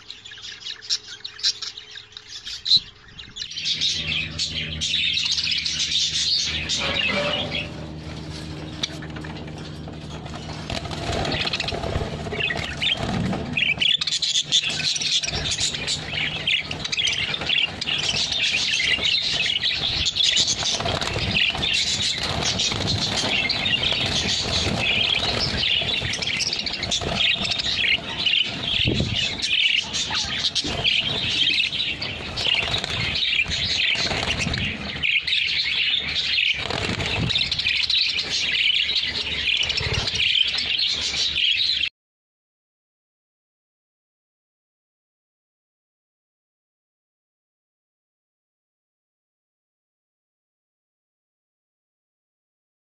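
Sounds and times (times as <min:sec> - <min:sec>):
flock of budgerigars chirping: 0:00.0 - 0:41.9.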